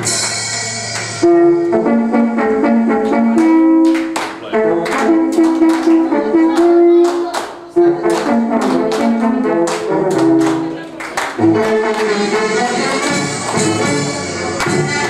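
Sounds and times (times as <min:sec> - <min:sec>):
percussive beat: 0:00.0 - 0:15.0
melody in held notes: 0:00.1 - 0:07.1.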